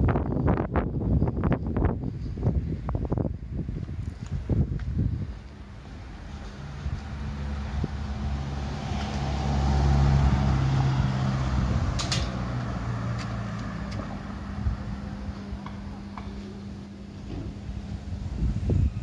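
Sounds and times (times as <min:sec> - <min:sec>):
vehicle engine passing: 0:05.6 - 0:18.2.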